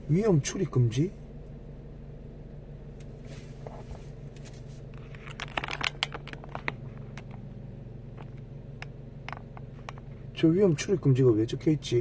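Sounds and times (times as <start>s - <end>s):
car engine idling: 0.0s - 12.0s
irregular clicks and ticks: 8.2s - 10.1s.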